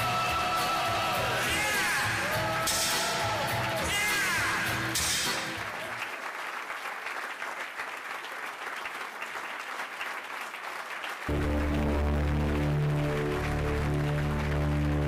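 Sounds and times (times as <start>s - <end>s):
music: 0.0s - 5.8s, 11.3s - 15.0s
audience applauding: 0.0s - 15.0s.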